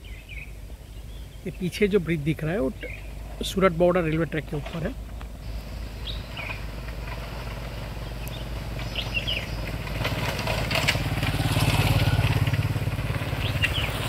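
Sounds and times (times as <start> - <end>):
birds chirping: 0.0 - 14.0
motorcycle passing: 5.3 - 14.0.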